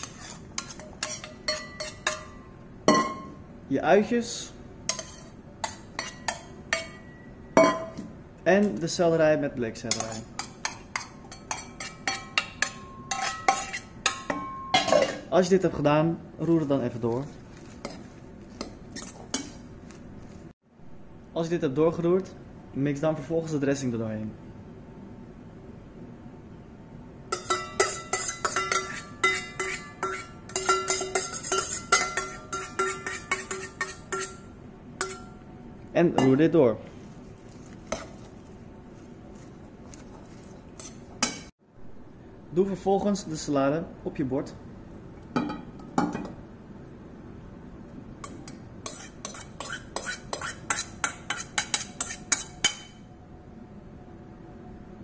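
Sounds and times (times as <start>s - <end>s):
spoon scraping metal bowl: 0.0s - 3.3s, 4.9s - 7.8s, 9.9s - 14.2s, 17.1s - 20.0s, 27.4s - 35.4s, 37.0s - 41.5s, 48.2s - 53.0s.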